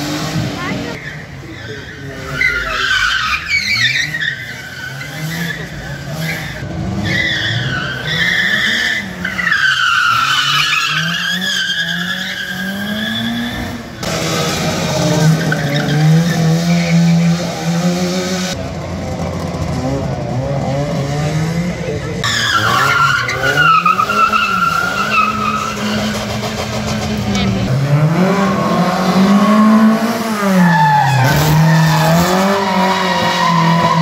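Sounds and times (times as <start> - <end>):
car engine revving: 0.0 - 34.0
tyres squealing: 22.2 - 27.7, 28.4 - 34.0.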